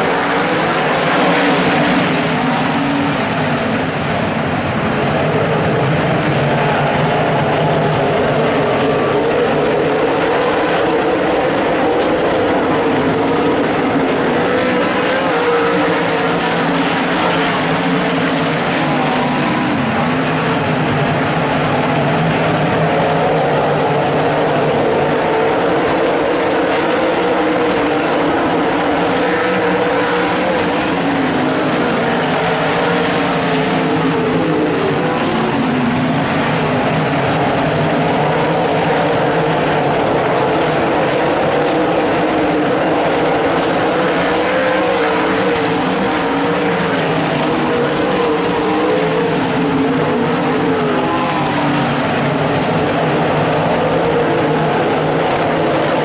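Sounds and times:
race car engines roaring: 0.0s - 56.0s.

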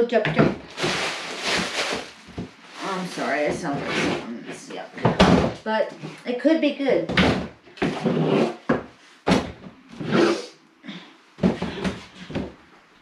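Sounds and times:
groceries rustling and knocking: 0.2s - 6.2s.

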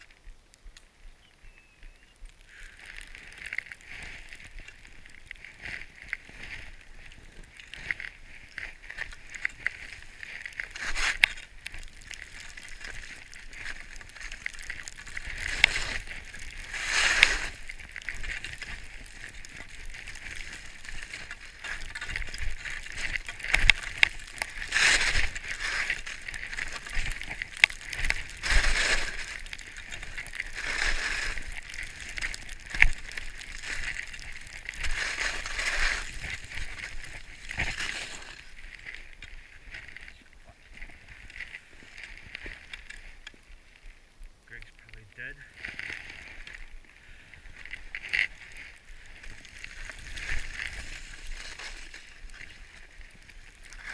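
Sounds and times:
skis hissing through snow: 2.6s - 7.1s, 12.1s - 38.6s, 49.1s - 53.1s.

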